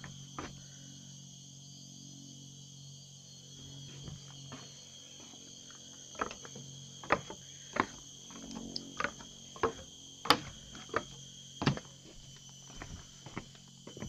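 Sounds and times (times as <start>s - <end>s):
forest insects chorus: 0.0s - 14.0s
sharp footsteps: 6.0s - 14.0s.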